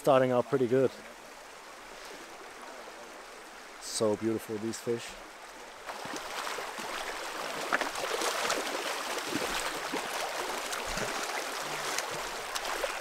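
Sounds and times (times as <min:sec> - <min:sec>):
river water rushing over stones: 0:00.0 - 0:13.0
small water splashes: 0:05.2 - 0:13.0.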